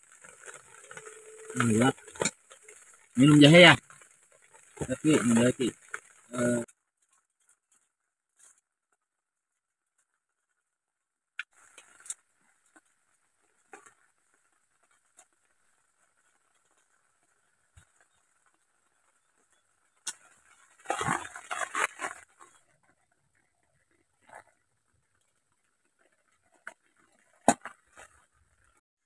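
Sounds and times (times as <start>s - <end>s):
plastic packet crinkling: 20.7s - 22.6s.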